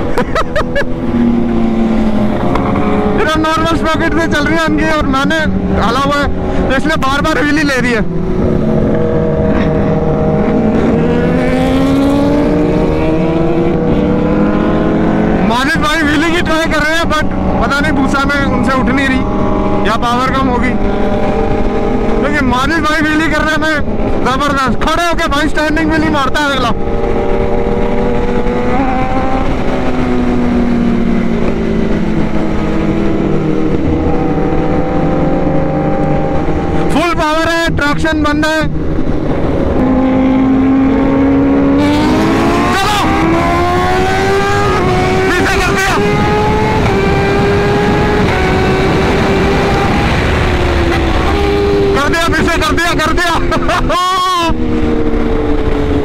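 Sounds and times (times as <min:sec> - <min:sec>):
motorcycle engines at speed: 0:00.0 - 0:56.0
wind rushing over microphone: 0:00.0 - 0:56.0
wind rushing: 0:37.7 - 0:53.7.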